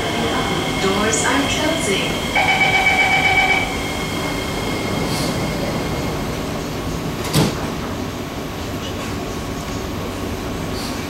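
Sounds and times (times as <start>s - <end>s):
train carriage hum: 0.0s - 11.0s
door warning beep: 2.2s - 3.9s.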